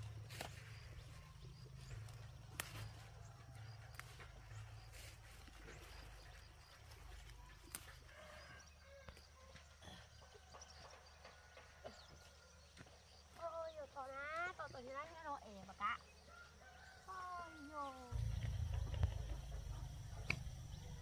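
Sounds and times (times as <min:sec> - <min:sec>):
faint low rumble: 0:18.1 - 0:21.0
sharp isolated clicks: 0:20.2 - 0:20.5.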